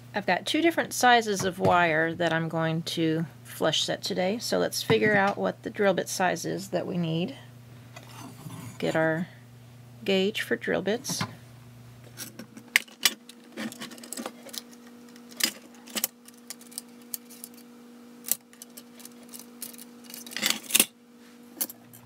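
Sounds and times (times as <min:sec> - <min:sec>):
metal tools clicking and clinking: 0:18.3 - 0:20.9.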